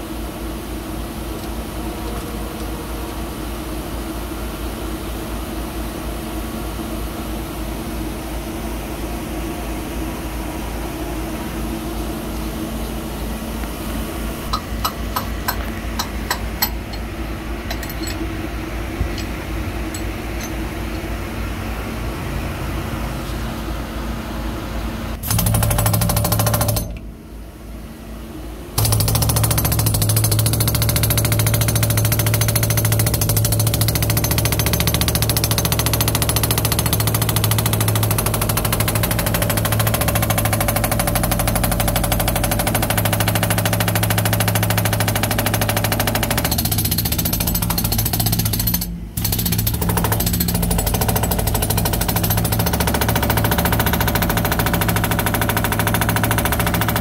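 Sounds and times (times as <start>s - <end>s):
jackhammer hammering concrete: 25.2s - 27.0s, 28.8s - 57.0s.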